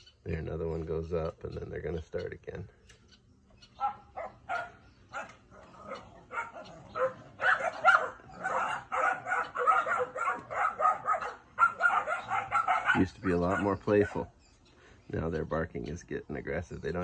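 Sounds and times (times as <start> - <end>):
puppies barking: 3.1 - 14.4.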